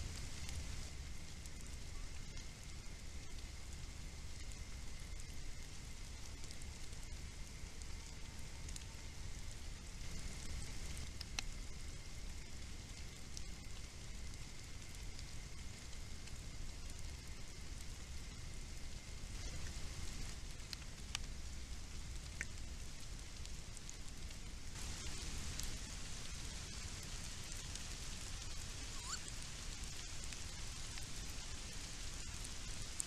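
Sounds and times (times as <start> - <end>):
crackly hiss and low rumble: 0.0 - 33.0.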